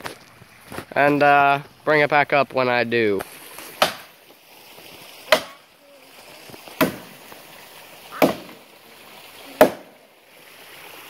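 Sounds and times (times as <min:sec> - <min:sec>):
axe chopping wood: 0:03.8 - 0:04.1, 0:05.3 - 0:05.6, 0:06.8 - 0:07.2, 0:08.2 - 0:08.6, 0:09.6 - 0:10.0.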